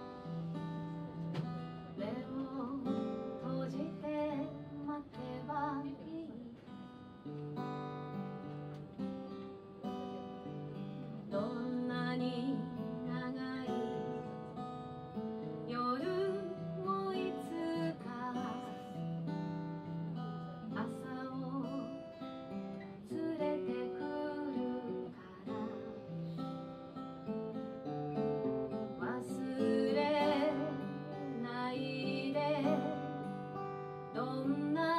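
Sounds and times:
acoustic guitar strumming: 0.0 - 34.9
woman singing: 1.3 - 7.3, 10.5 - 19.4, 20.2 - 26.5, 28.8 - 34.9.

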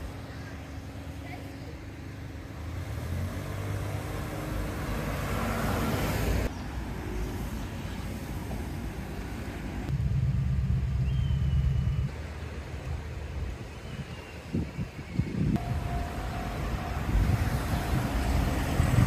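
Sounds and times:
passing car: 2.2 - 12.2, 15.6 - 19.0
low engine drone: 9.9 - 13.3, 15.6 - 19.0.

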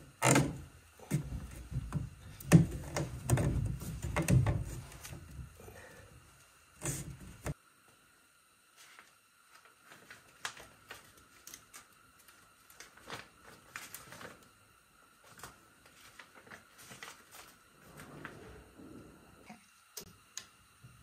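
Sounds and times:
paper booklet rustling: 8.8 - 14.5, 15.2 - 18.0.

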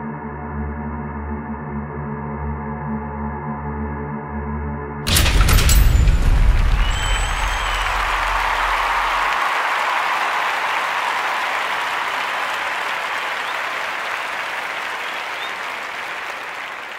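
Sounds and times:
large audience applauding: 5.2 - 16.9.

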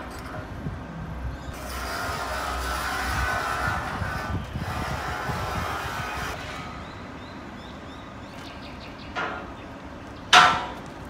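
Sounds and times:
loud sharp clack: 10.3 - 11.0.

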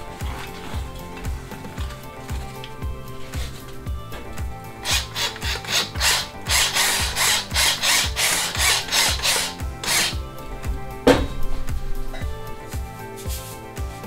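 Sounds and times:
salt grinder grinding: 0.0 - 10.2.

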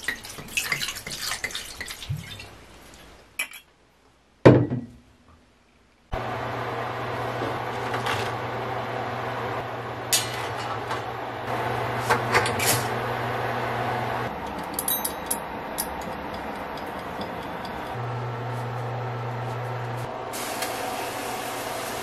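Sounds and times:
electric cooktop humming: 6.1 - 22.0.

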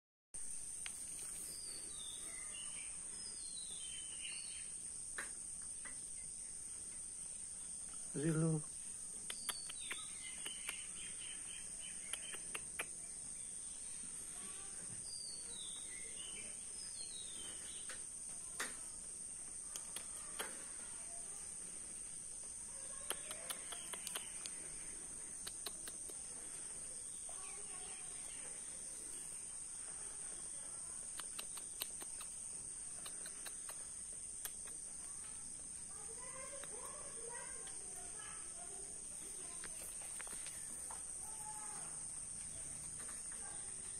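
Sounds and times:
birds chirping: 0.8 - 18.9, 22.4 - 43.9
person's voice: 8.2 - 8.7
light clicks: 23.0 - 24.6.

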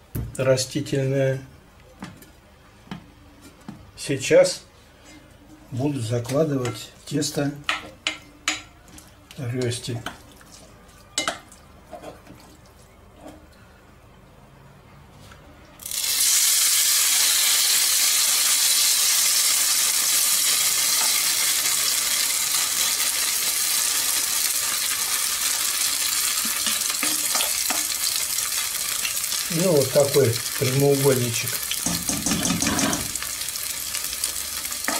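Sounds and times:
batter sizzling in hot oil: 15.8 - 34.9.

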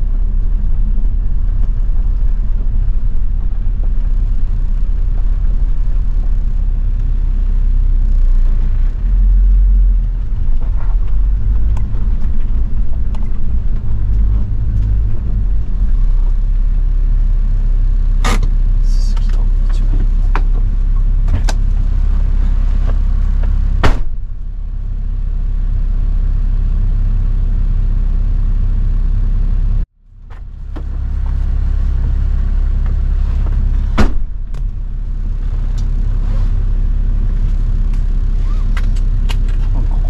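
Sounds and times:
diesel engine running: 0.0 - 40.0.

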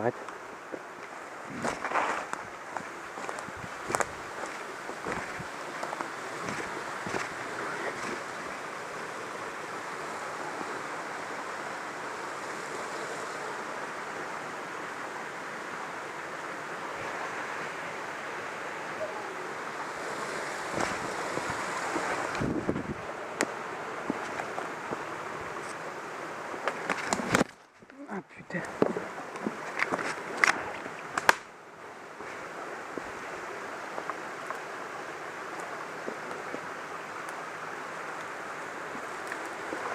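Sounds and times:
stream rushing over rocks: 0.0 - 39.9
sharp cracks: 30.4 - 31.5.

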